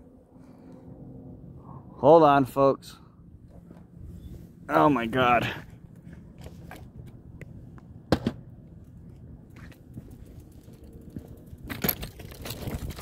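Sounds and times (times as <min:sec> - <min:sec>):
low rumble: 0:00.0 - 0:04.8.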